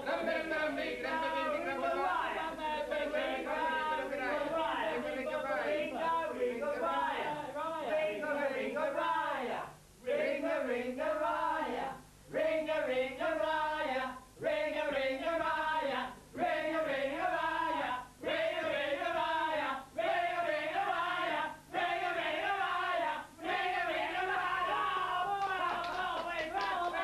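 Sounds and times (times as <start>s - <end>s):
group of voices chanting: 16.5s - 27.0s.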